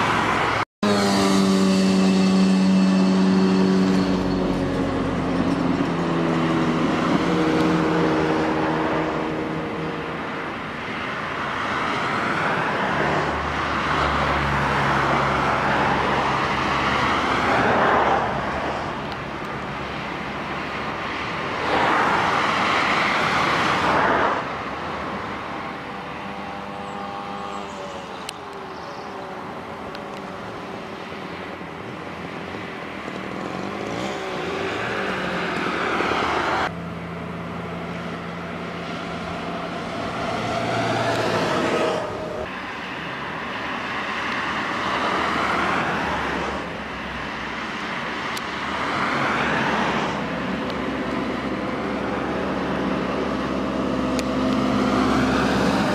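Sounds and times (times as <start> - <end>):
cars driving past: 0.0 - 55.9
moped engine buzzing: 0.8 - 10.3, 25.7 - 28.2.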